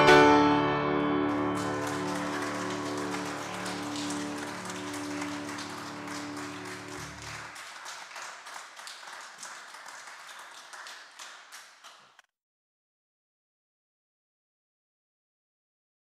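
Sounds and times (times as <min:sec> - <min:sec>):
held musical chord: 0:00.0 - 0:07.5
applause: 0:01.3 - 0:12.2.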